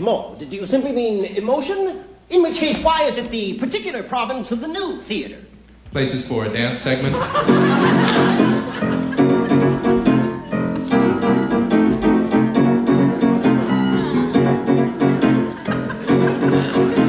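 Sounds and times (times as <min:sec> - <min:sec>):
piano dance tune: 0:07.3 - 0:17.0.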